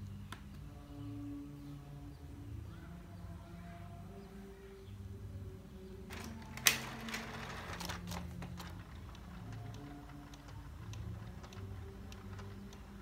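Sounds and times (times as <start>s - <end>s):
printer low hum: 6.1s - 13.0s
printer mechanism clicking: 6.1s - 13.0s.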